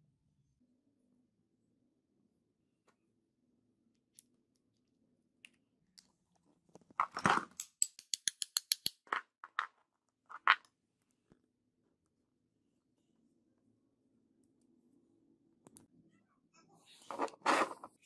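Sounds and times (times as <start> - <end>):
metal scrape: 17.0 - 18.0.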